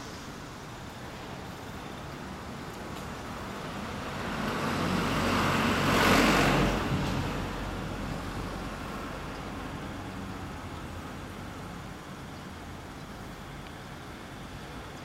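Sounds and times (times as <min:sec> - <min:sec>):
low engine hum: 0:00.0 - 0:15.0
vehicle passing by: 0:03.6 - 0:10.3.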